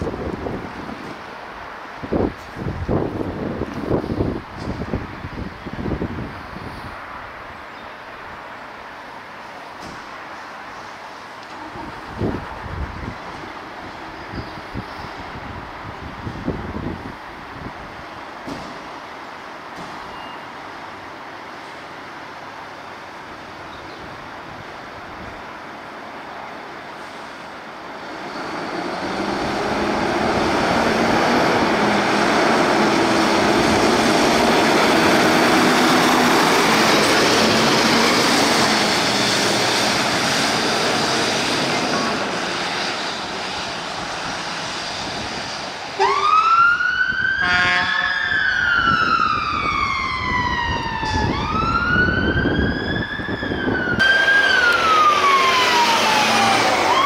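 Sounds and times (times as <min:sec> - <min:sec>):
vehicle passing with rushing noise: 0:28.2 - 0:46.0, 0:53.4 - 0:57.0
emergency vehicle siren wailing: 0:45.9 - 0:57.0.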